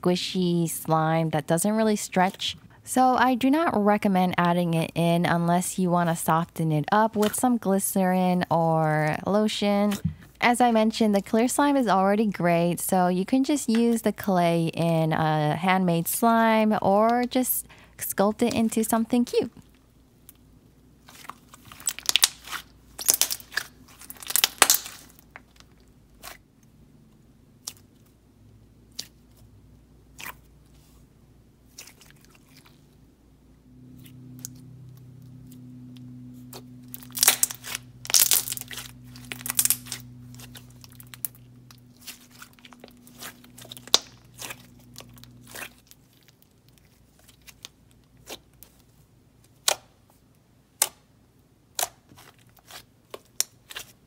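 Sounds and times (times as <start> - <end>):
slime wet clicks and pops: 24.3 - 25.0.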